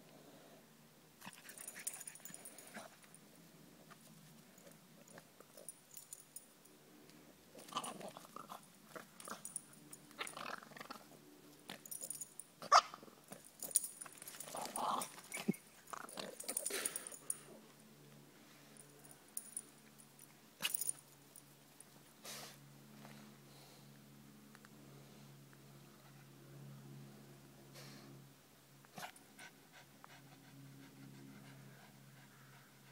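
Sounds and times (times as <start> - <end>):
dog growling: 14.5 - 15.2.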